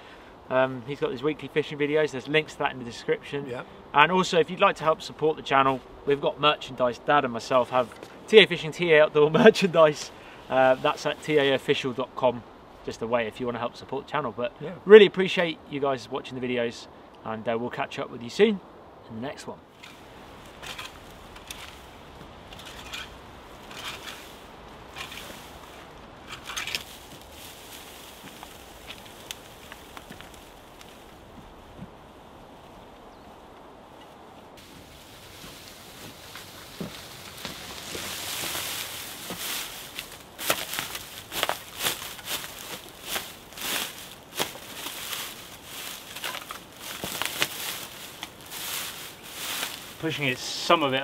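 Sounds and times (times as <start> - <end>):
steady outdoor hiss: 0.0 - 51.0
dry reeds rustling: 4.0 - 12.0, 19.7 - 51.0.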